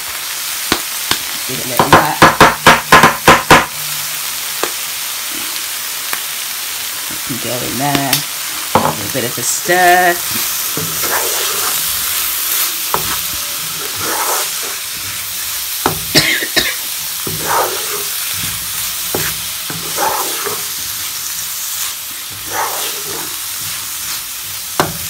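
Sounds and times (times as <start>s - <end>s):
food sizzling in a frying pan: 0.0s - 25.0s
spatula knocking on pan: 1.8s - 4.0s, 8.7s - 9.0s, 15.8s - 16.3s, 17.2s - 20.6s, 24.8s - 25.0s
spatula stirring and scraping: 8.0s - 25.0s.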